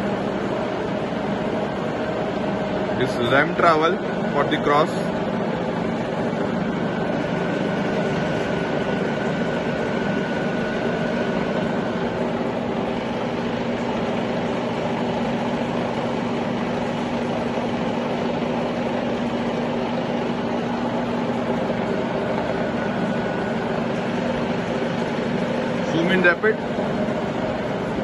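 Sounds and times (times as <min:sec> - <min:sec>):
milling machine motor hum: 0:00.0 - 0:28.0.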